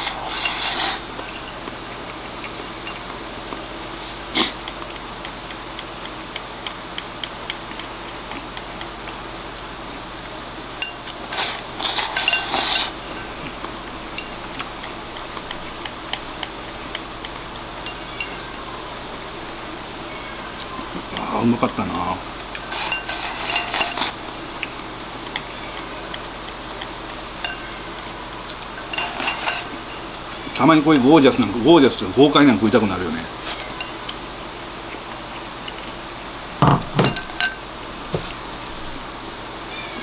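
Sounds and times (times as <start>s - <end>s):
chopsticks scraping bowl: 0.0s - 3.1s, 10.8s - 13.6s, 20.8s - 24.7s, 28.5s - 32.0s
chopsticks tapping ceramic bowl: 28.8s - 31.6s, 36.6s - 37.6s.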